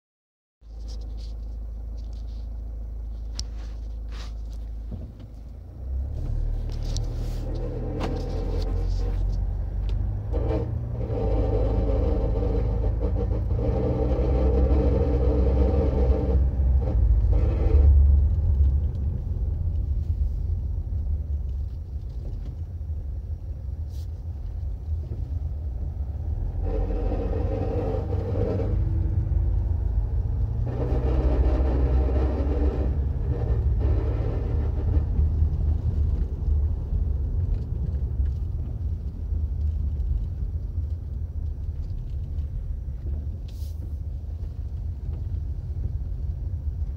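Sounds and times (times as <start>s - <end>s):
car driving rumble: 0.6s - 46.9s
metallic noise from car: 0.6s - 46.9s.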